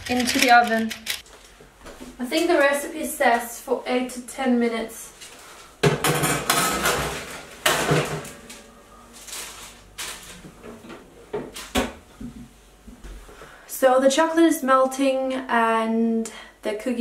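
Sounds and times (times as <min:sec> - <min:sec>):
metal baking tray clattering: 0:05.9 - 0:08.6.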